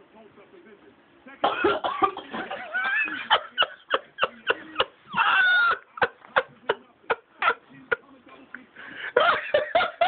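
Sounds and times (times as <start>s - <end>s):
person coughing and hacking: 1.4s - 3.2s.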